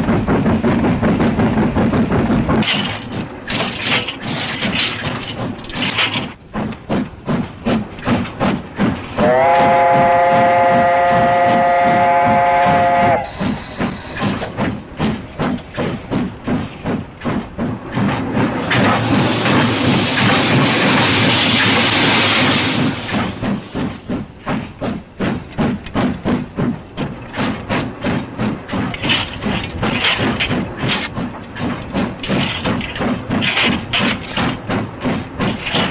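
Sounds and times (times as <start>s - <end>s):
steam locomotive exhaust chuffing: 0.0s - 35.9s
steam whistle: 9.2s - 13.5s.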